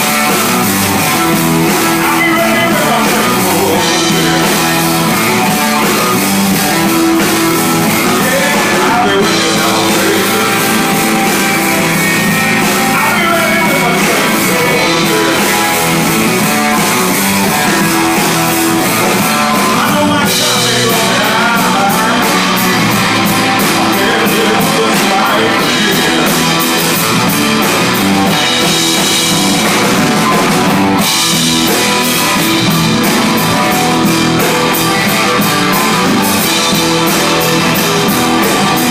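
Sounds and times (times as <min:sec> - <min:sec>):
drum kit with cymbals: 0:00.0 - 0:38.9
electric guitar: 0:00.0 - 0:38.9
live rock band playing: 0:00.0 - 0:38.9.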